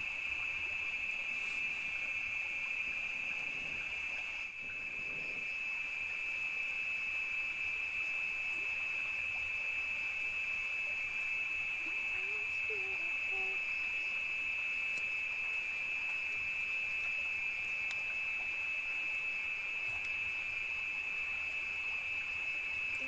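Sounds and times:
night insects chorus: 0.0 - 23.0.

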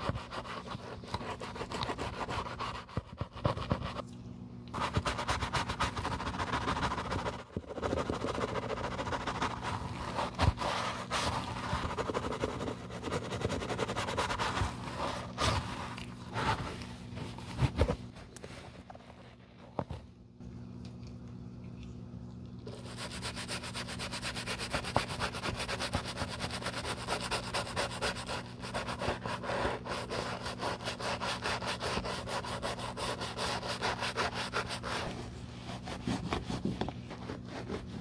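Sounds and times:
brush scrubbing leather: 0.0 - 3.9, 22.8 - 38.0.

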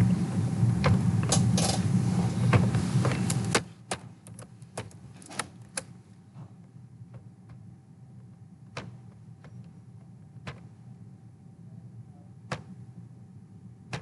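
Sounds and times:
low rumbling noise: 0.0 - 3.6.

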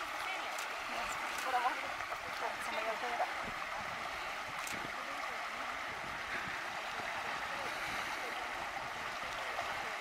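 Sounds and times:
gently moving water hiss: 0.0 - 10.0.

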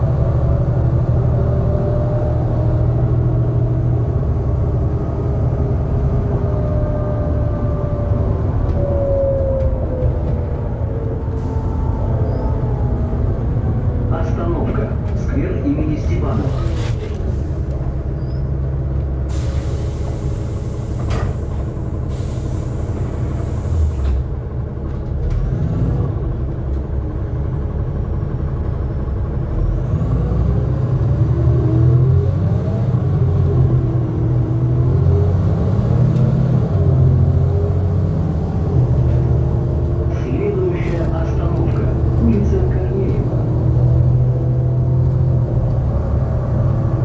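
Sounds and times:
bus engine and road rumble: 0.0 - 47.0
air brake hiss: 19.3 - 21.4, 22.1 - 24.2.

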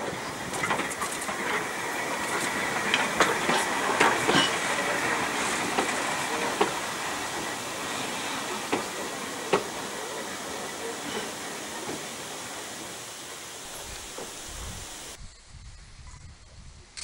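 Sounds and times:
train wheels clacking over rail joints: 0.0 - 14.4.

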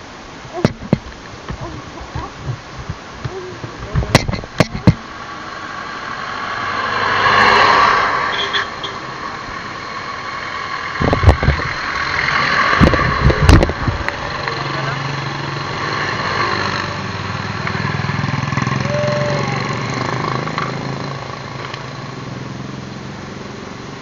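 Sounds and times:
low thumps: 0.5 - 5.2
sharp knocks: 0.6 - 5.2
motor vehicle passing by: 4.8 - 24.0.

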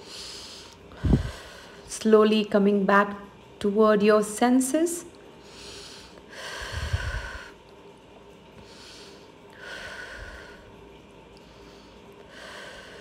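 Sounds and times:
woman breathing through nose: 0.0 - 1.9, 5.4 - 7.6, 8.6 - 10.8, 11.4 - 13.0.

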